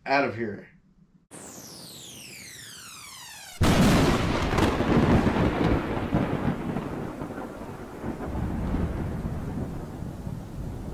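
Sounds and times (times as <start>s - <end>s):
thunder rumble: 2.8s - 10.9s.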